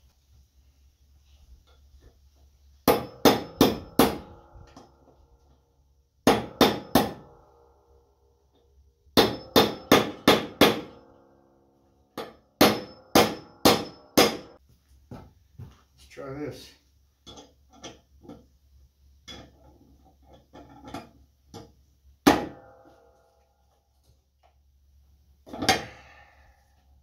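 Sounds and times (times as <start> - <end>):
hammer striking steel: 2.8 - 4.9, 6.2 - 7.4, 9.2 - 11.4, 12.1 - 14.6, 22.2 - 23.2
metallic ring: 10.9 - 14.6.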